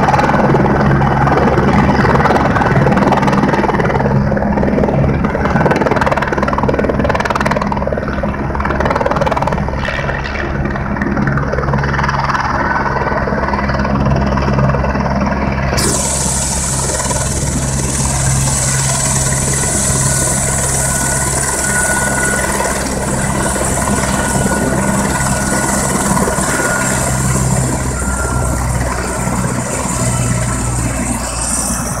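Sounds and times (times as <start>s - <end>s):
helicopter rotor beat: 0.0s - 32.0s
high turbine hiss: 15.8s - 32.0s.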